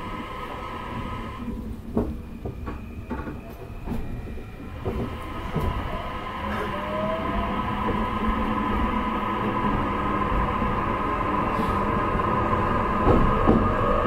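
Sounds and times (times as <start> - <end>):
train motor whine: 0.0 - 14.0.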